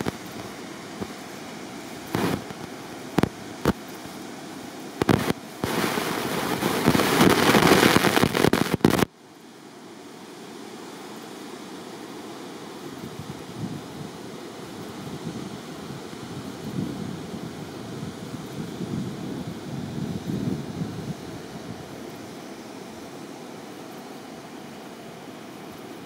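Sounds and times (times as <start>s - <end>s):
wind buffeting microphone: 13.0s - 22.0s.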